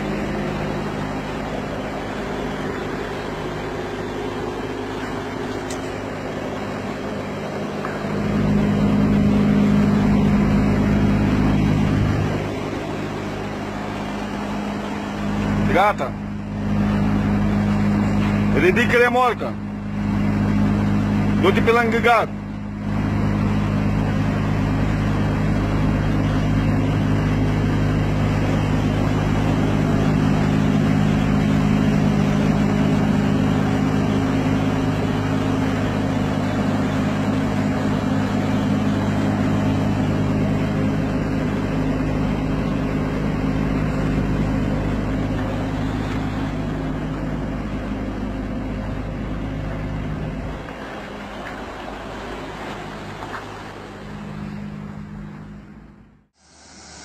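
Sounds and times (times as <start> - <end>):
lorry diesel engine running: 0.0 - 57.0.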